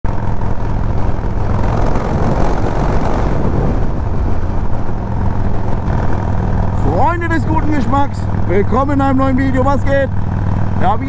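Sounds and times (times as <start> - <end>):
motorcycle engine cruising: 0.0 - 11.0
wind noise: 0.1 - 8.4.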